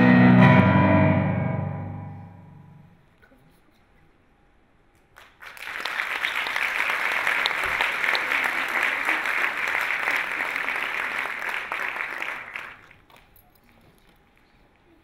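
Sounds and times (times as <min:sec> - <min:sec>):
audience applause: 0:05.2 - 0:13.4.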